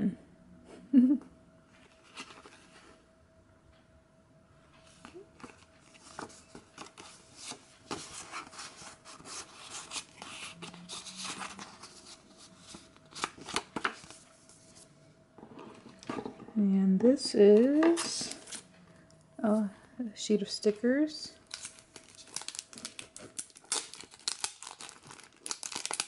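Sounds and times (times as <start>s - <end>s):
paper and card rustling: 5.0s - 14.9s, 17.6s - 18.7s, 21.4s - 26.0s.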